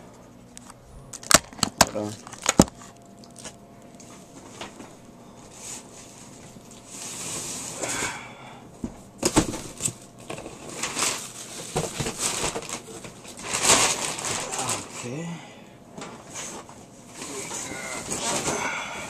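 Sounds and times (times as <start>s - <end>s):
packaging rustling and scraping: 1.2s - 8.1s, 9.2s - 15.2s, 16.1s - 19.0s.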